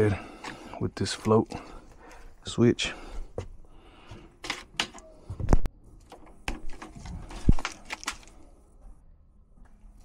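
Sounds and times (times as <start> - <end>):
wire strippers clicking and knocking: 4.4 - 8.3.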